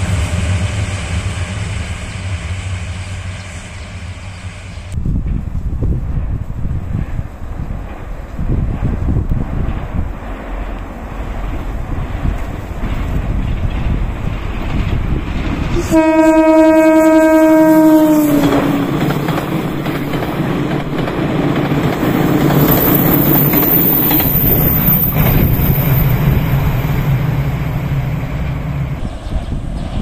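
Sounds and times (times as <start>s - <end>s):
train wheels rumbling on rails: 0.0s - 30.0s
train horn blast: 15.7s - 19.3s.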